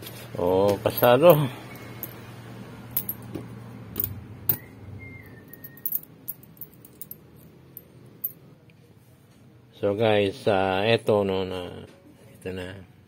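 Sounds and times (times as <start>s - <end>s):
metal tips clinking: 0.9s - 2.2s, 3.0s - 3.3s, 5.5s - 8.4s.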